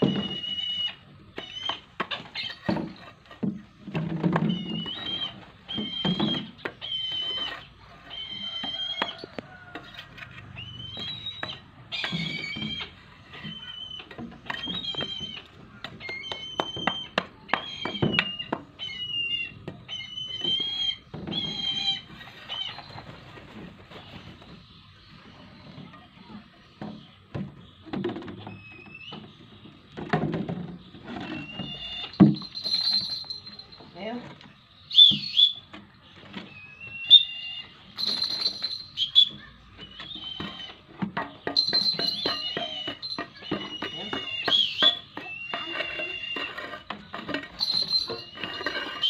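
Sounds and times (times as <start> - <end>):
bird of prey whistled cries: 10.6 - 15.4, 34.9 - 35.7, 36.6 - 40.8, 41.6 - 46.5.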